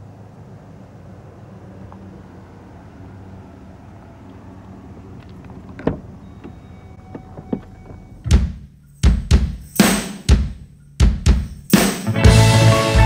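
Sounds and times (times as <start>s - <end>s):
car hum: 0.0s - 13.0s
car door thunk: 5.3s - 8.6s
short beeps: 6.2s - 8.3s
punk rock band playing: 11.1s - 13.0s.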